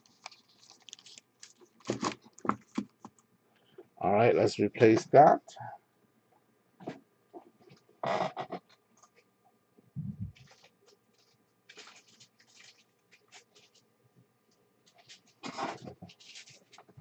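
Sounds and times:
trading cards rustling and scraping: 0:00.0 - 0:03.2, 0:10.4 - 0:13.8, 0:14.9 - 0:17.0.

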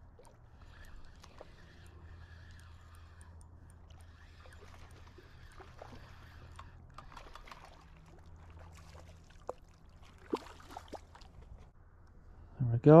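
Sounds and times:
fish splashing at water surface: 0:00.2 - 0:11.4.

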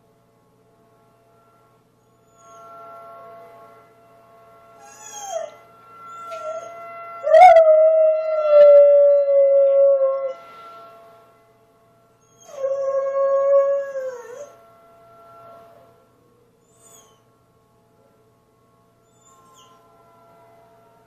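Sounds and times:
dog howling: 0:04.8 - 0:10.4, 0:12.3 - 0:14.6.

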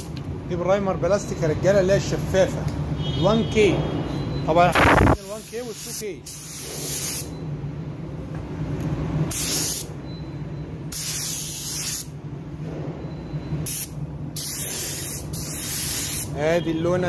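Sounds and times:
steady low hum: 0:04.8 - 0:05.2
paint spray gun hissing: 0:11.0 - 0:12.1, 0:13.7 - 0:16.3.

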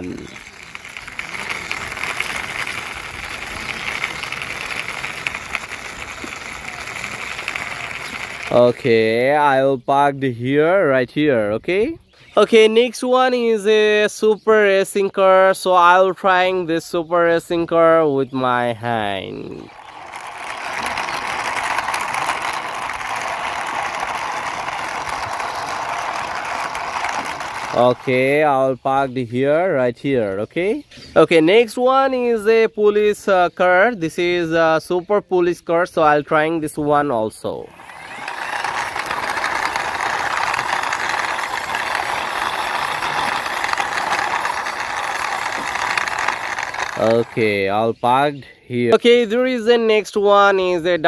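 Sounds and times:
toy car rattling on stone: 0:00.0 - 0:08.9, 0:19.5 - 0:28.6, 0:37.3 - 0:47.7.

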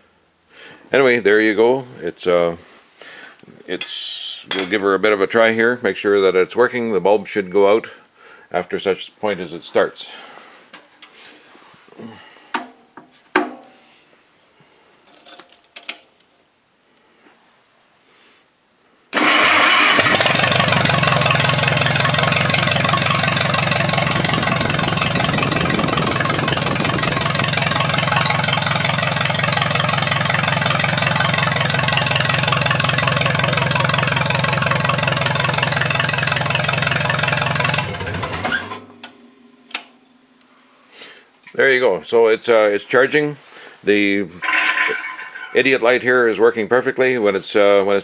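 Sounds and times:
tractor engine starting and idling: 0:19.1 - 0:39.5
engine winding down: 0:19.2 - 0:39.0.

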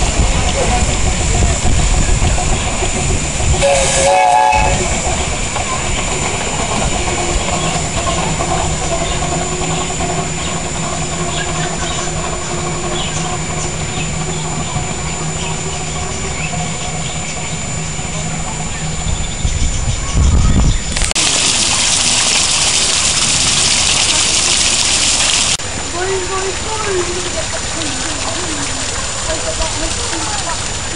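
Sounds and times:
miniature steam train rumbling: 0:00.0 - 0:30.9
small waterfall splashing: 0:21.0 - 0:30.9.

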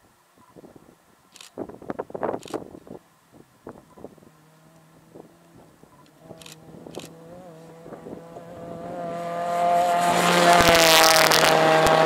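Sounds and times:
rally car engine: 0:04.2 - 0:12.0.

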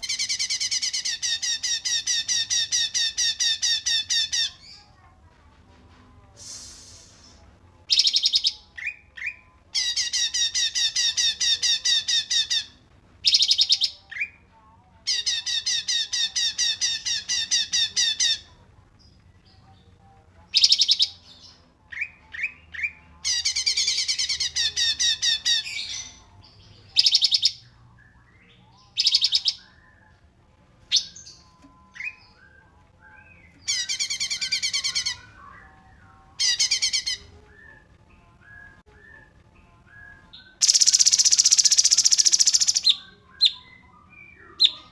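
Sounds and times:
songbird trills: 0:30.9 - 0:44.9.

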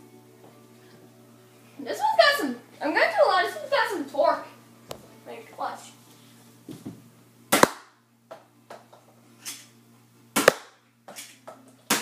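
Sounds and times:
toy dart blaster shots: 0:07.5 - 0:08.0, 0:10.4 - 0:10.8.

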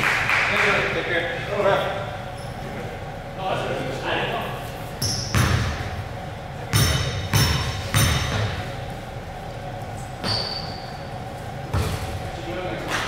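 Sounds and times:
basketball bouncing on gym court: 0:05.0 - 0:06.0, 0:06.7 - 0:08.7, 0:10.2 - 0:10.8, 0:11.7 - 0:12.2.

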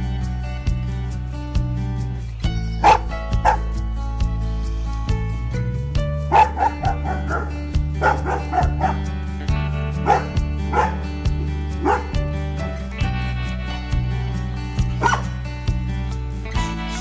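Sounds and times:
background music with low notes: 0:00.0 - 0:17.0
dog barking and yipping: 0:02.8 - 0:03.8, 0:06.3 - 0:09.1, 0:10.0 - 0:12.8, 0:14.9 - 0:15.4.

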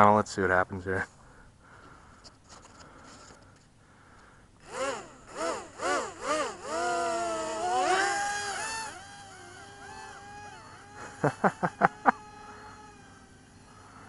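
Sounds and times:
small motors whining: 0:04.6 - 0:14.0.

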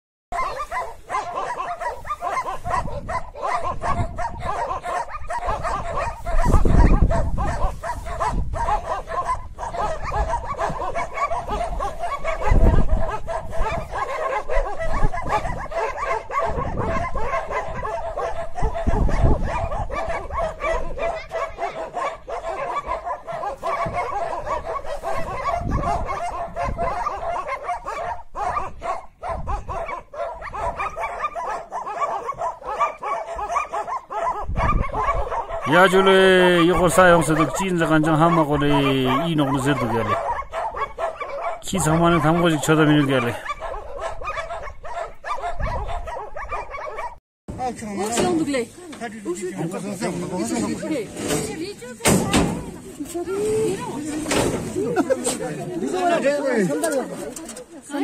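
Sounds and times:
dogs barking and yelping: 0:00.3 - 0:47.2
low rumbles on microphone: 0:05.5 - 0:10.9.

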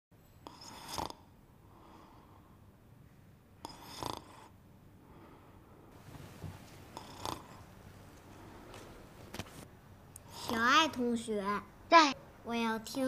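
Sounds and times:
man snoring: 0:00.5 - 0:01.3, 0:03.6 - 0:04.5, 0:07.0 - 0:07.6.

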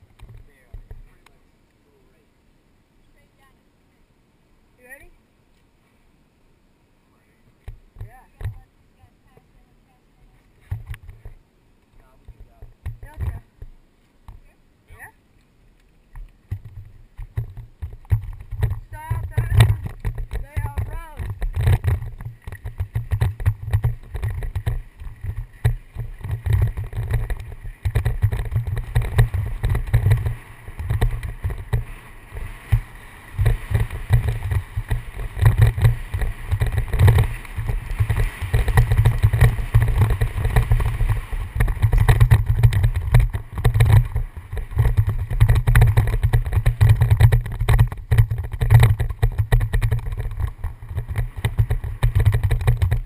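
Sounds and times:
bike rattling on gravel: 0:16.4 - 0:53.0
wind buffeting microphone: 0:16.5 - 0:53.0.

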